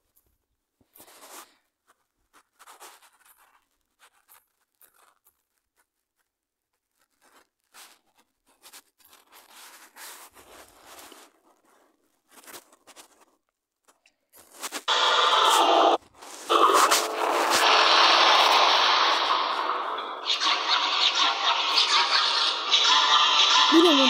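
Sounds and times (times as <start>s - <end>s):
rustling and scratching: 0.0s - 14.9s, 15.5s - 17.9s.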